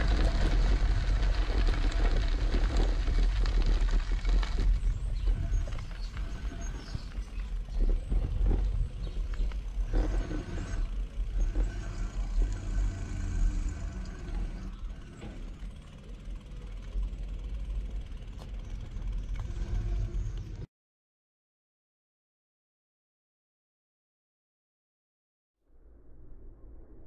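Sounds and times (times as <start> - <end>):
low rumble: 0.0 - 20.7, 25.7 - 27.0
vehicle traffic: 0.0 - 20.7.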